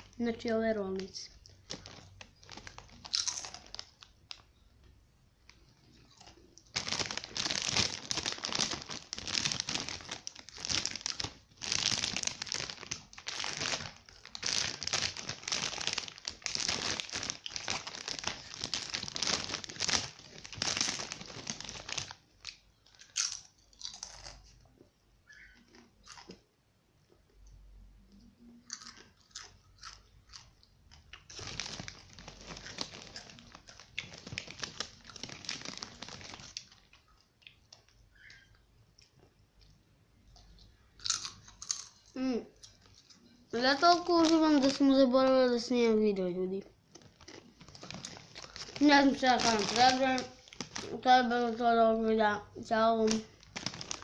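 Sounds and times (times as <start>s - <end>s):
chip bag crinkling: 0.0s - 4.5s, 5.5s - 24.6s, 28.7s - 38.3s, 41.0s - 45.4s, 46.9s - 51.7s, 52.7s - 54.0s
chips being chewed: 1.5s - 4.4s, 5.6s - 24.6s, 28.6s - 38.0s, 40.4s - 43.2s, 46.9s - 50.9s, 53.4s - 54.0s.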